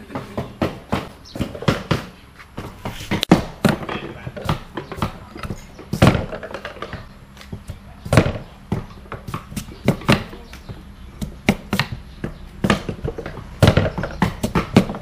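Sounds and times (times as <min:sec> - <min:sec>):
cleaver chopping on wooden block: 0:03.1 - 0:15.0.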